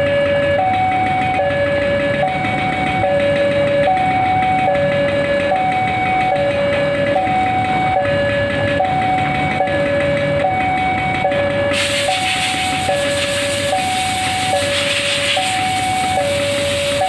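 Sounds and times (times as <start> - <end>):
level crossing alarm: 0.0 - 17.0
loud hiss: 11.7 - 17.0.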